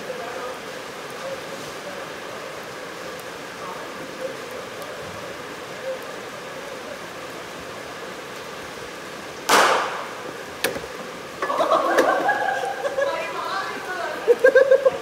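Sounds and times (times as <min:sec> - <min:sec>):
bat hitting cricket ball: 0:09.5 - 0:10.1.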